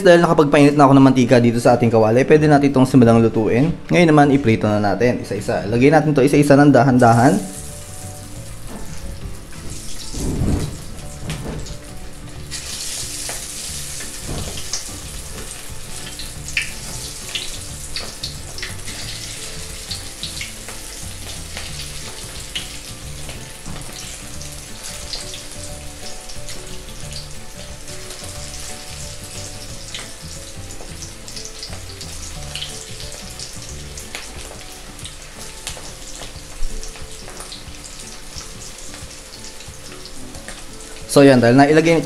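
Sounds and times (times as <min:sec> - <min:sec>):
food sizzling in hot oil: 0:07.0 - 0:42.0
oil crackles and pops: 0:07.5 - 0:41.1.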